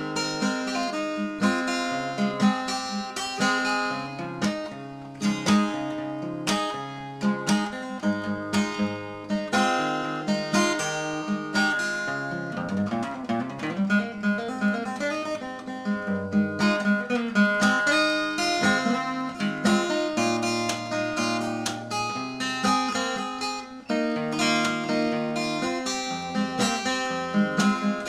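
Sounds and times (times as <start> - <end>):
fingerstyle acoustic guitar: 0.0 - 28.0.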